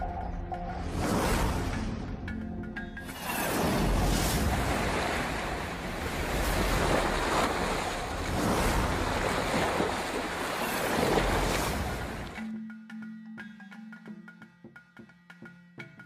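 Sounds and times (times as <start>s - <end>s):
water churning and splashing: 3.0s - 12.5s.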